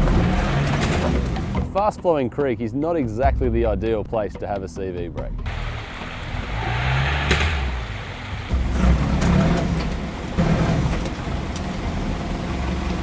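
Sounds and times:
engine revving in surges: 0:00.0 - 0:01.6, 0:05.5 - 0:13.0.

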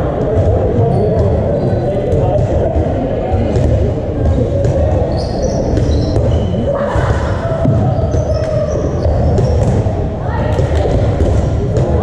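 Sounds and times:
players' voices: 0:00.0 - 0:12.0
balls bouncing on wooden floor: 0:00.2 - 0:06.5, 0:07.6 - 0:12.0
sneaker squeaks: 0:00.4 - 0:02.3, 0:03.6 - 0:10.0.

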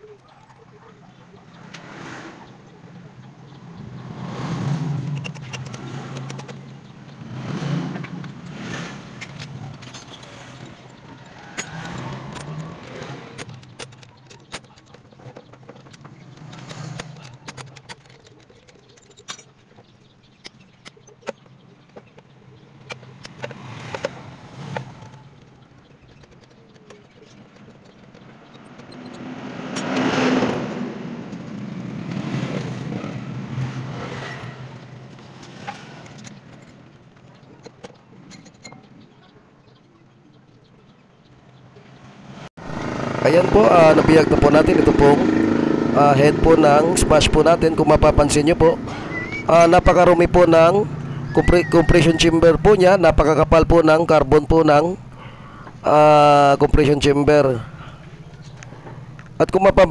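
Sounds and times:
low traffic hum: 0:00.0 - 0:59.9
vehicle passing: 0:00.8 - 0:14.6, 0:27.9 - 0:37.0, 0:41.6 - 0:59.9
metal tools clinking: 0:08.2 - 0:22.2.

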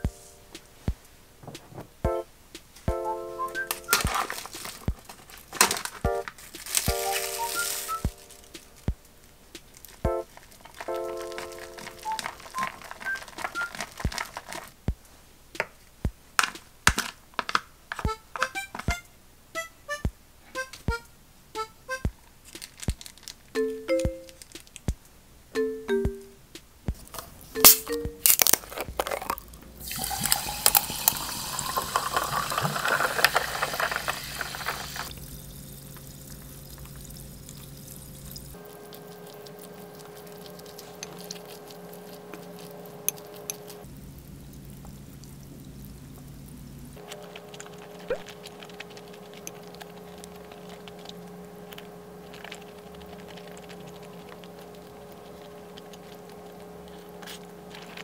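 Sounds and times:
water fizzing: 0:03.5 - 0:08.9, 0:09.6 - 0:14.7, 0:29.1 - 0:51.5
ice cubes clinking in glass: 0:06.6 - 0:08.4, 0:10.7 - 0:14.7, 0:27.6 - 0:35.3
water pouring into a glass: 0:29.8 - 0:41.4.

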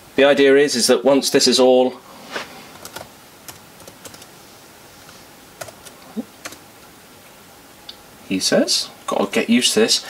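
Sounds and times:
laptop keyboard typing: 0:02.7 - 0:04.3, 0:05.6 - 0:06.6.

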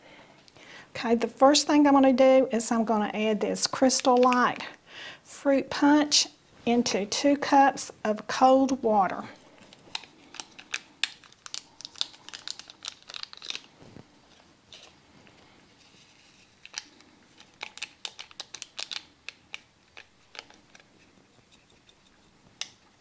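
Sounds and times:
drink packet crinkling and tearing: 0:09.5 - 0:21.0.

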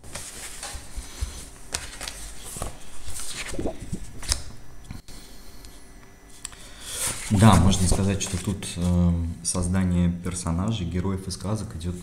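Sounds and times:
paper rustling: 0:00.0 - 0:04.4, 0:07.0 - 0:08.9.

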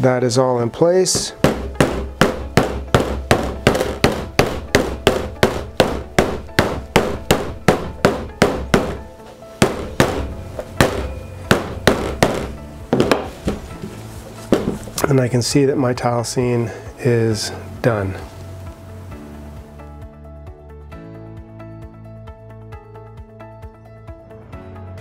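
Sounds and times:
hammer tapping wooden frame: 0:01.4 - 0:13.6.

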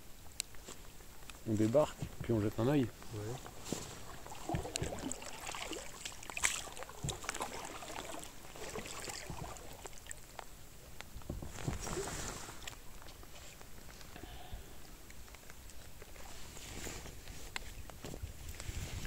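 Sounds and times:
paddle strokes splashing: 0:02.9 - 0:10.7, 0:11.3 - 0:13.8.

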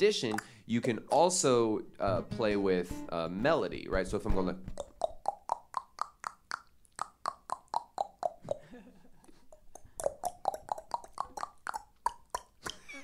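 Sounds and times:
beatbox tongue clicks melody: 0:00.2 - 0:00.6, 0:04.7 - 0:08.6, 0:09.3 - 0:13.0.

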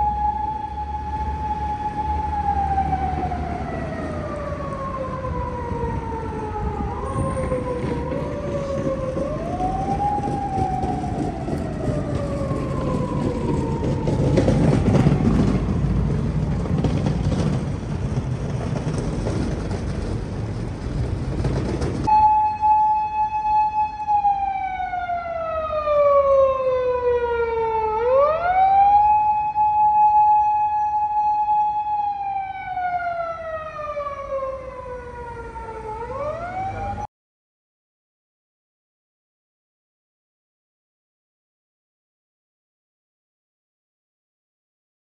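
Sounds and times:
police sirens wailing: 0:00.0 - 0:16.9, 0:22.0 - 0:37.1
street traffic noise: 0:00.0 - 0:37.1.

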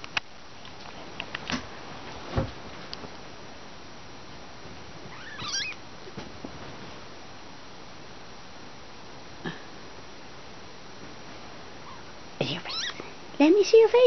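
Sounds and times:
soft thump: 0:02.3 - 0:02.6
kitten mewing: 0:05.1 - 0:05.8, 0:11.8 - 0:13.0.

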